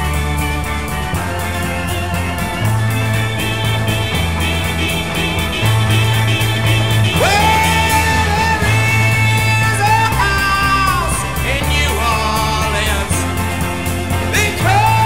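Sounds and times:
bass line: 0.0 - 15.0
electric guitar: 0.0 - 15.0
male singer holding a note: 7.1 - 13.4, 14.3 - 15.0.

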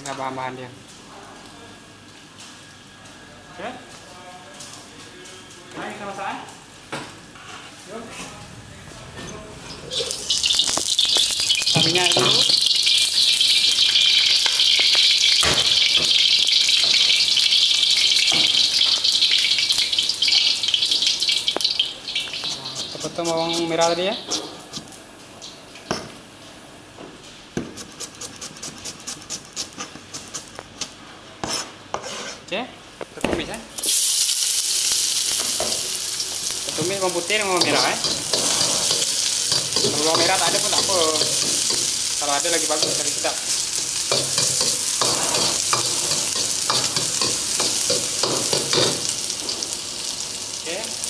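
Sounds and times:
food sizzling in hot oil: 9.8 - 24.8, 33.8 - 51.0
metal spatula scraping wok: 31.4 - 32.5, 37.4 - 41.9, 44.1 - 49.0.

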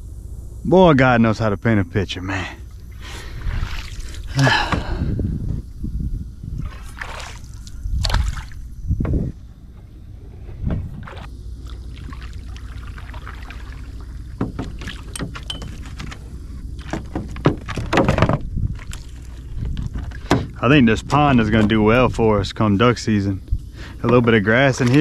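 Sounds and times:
steady low rumble: 0.0 - 25.0
splashes in shallow water: 3.1 - 4.5, 6.6 - 8.7, 11.0 - 16.0, 24.5 - 25.0.

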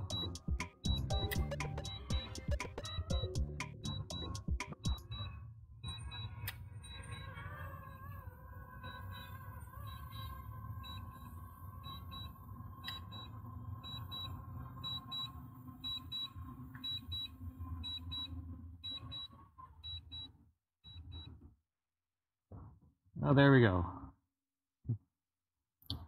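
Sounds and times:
drone motors humming: 0.0 - 5.3, 5.9 - 18.7
high double warning beeps: 0.0 - 7.4, 11.8 - 20.3.

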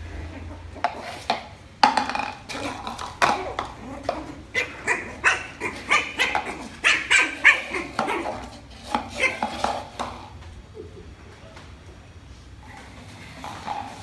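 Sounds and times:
puppy yapping: 2.5 - 9.9.

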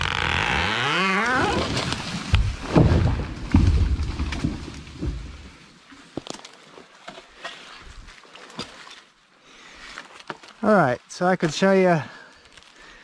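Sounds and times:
branches snapping: 0.0 - 5.3
tree crashing through brush: 0.0 - 5.5
cracks and rustles of limbs: 0.0 - 13.0.

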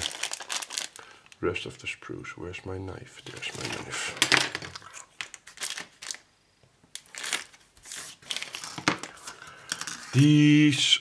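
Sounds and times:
plastic bag crinkling: 0.0 - 1.4, 3.4 - 6.3, 7.0 - 10.2.

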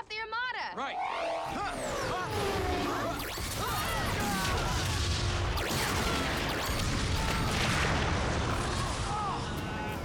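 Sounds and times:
explosions and blast impacts: 2.3 - 10.0.

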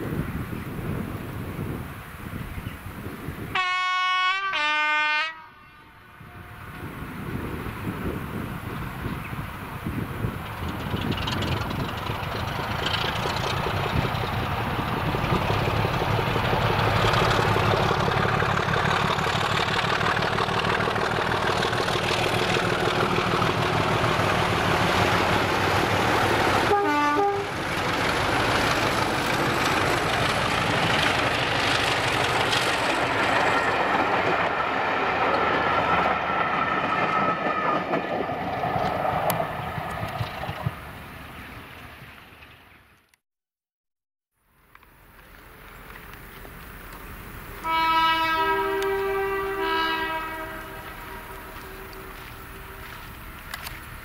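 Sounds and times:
diesel locomotive engines thrashing: 7.5 - 40.9
train wheels clattering on rails: 10.2 - 26.8, 27.5 - 40.9.

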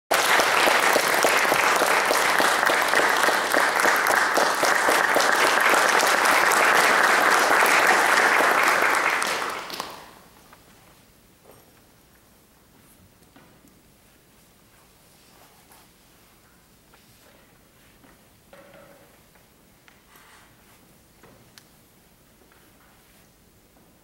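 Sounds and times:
audience applauding: 0.1 - 10.3.

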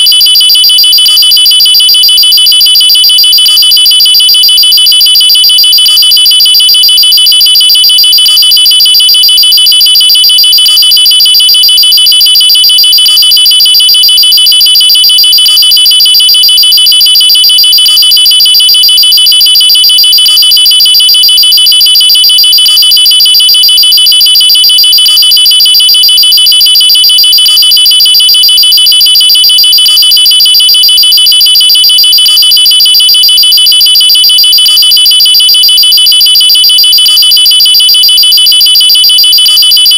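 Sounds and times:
pulsing electronic alarm siren: 0.0 - 39.9.

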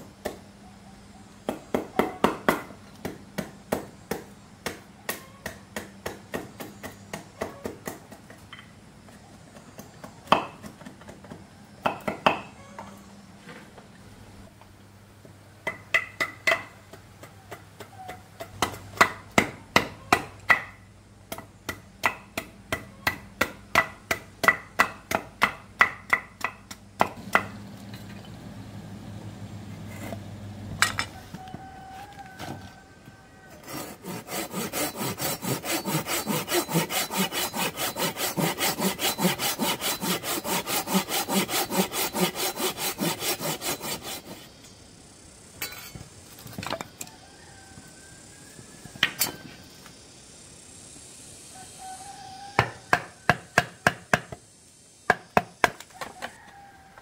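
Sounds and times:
hand saw cutting wood: 33.6 - 44.5.

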